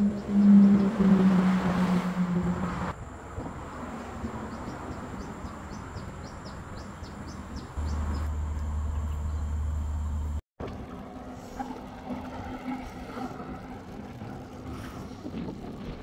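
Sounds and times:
loud low hum: 0:00.0 - 0:11.2.

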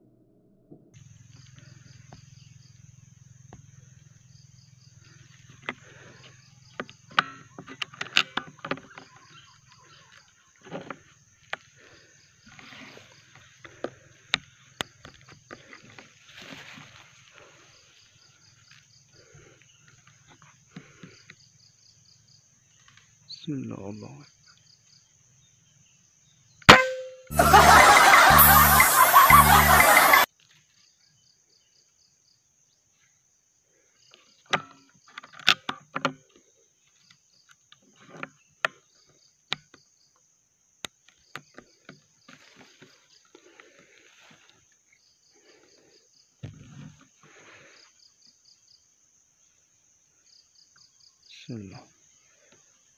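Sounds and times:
insects chirping: 0:01.0 - 0:52.9
clicks and knocks from handling rifle: 0:06.8 - 0:11.6, 0:34.5 - 0:36.4
high-pitched insect drone: 0:27.3 - 0:30.3.

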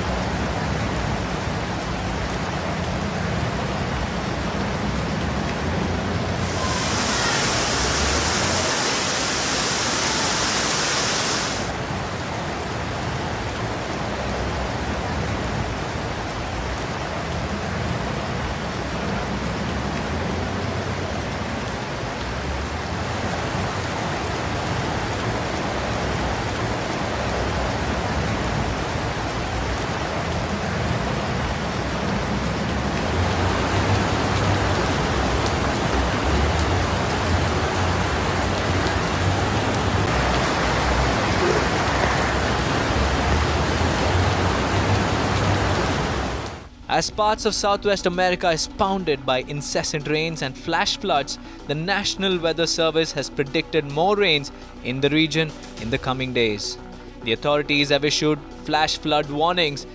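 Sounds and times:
heavy rain hissing: 0:00.0 - 0:47.1
rushing floodwater: 0:00.0 - 0:59.9
sharp high hiss: 0:06.4 - 0:11.8.

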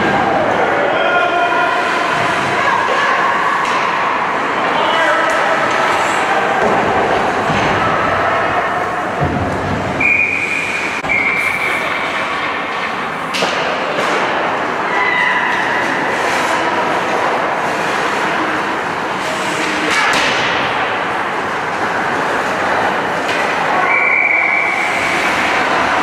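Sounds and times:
skates scraping ice: 0:01.5 - 0:12.2, 0:12.8 - 0:26.0
sticks and puck clacking: 0:02.1 - 0:10.0, 0:12.7 - 0:24.1.

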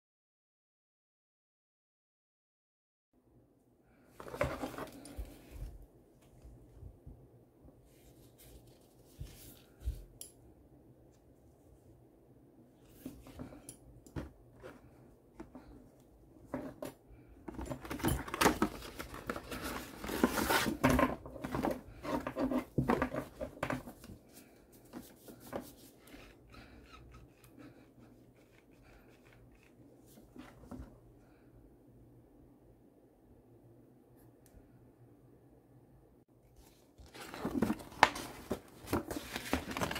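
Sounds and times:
cardboard packaging crinkling: 0:36.7 - 0:39.9.

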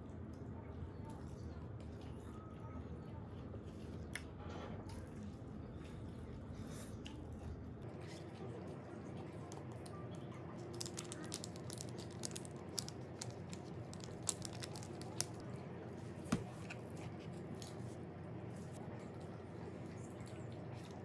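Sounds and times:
condiment packets crinkling and tearing: 0:10.6 - 0:15.4.

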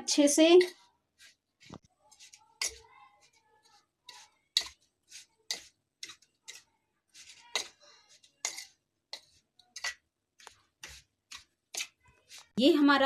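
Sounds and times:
steel spoon scraping a metal plate: 0:02.1 - 0:12.6.

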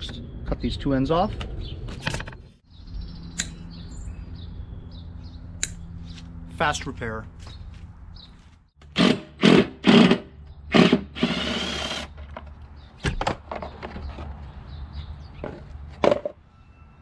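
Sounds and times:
cordless drill running: 0:09.0 - 0:12.1.

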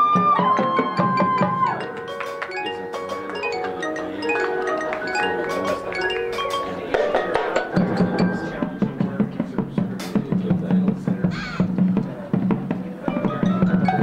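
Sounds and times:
marimbas and vibraphones playing: 0:00.0 - 0:09.5, 0:13.1 - 0:14.0
steady percussive beat: 0:00.0 - 0:14.0.

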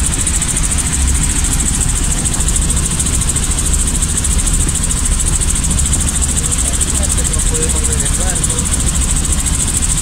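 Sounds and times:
helicopter engine and rotor drone: 0:00.0 - 0:10.0.

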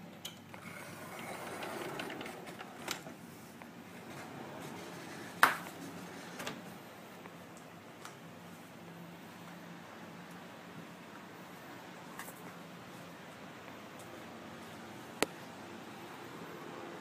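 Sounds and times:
door opening rush: 0:00.6 - 0:03.2, 0:03.9 - 0:06.8.

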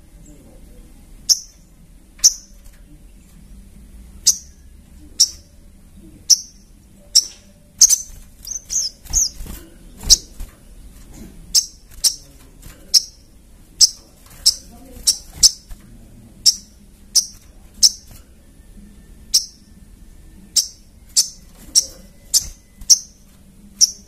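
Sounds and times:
bird calling high chips: 0:07.2 - 0:09.5, 0:20.6 - 0:24.0.

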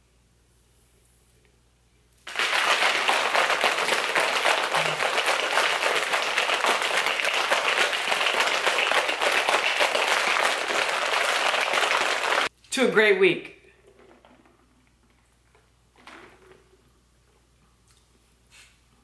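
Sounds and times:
plastic shaker bottle rattling: 0:02.3 - 0:12.5.

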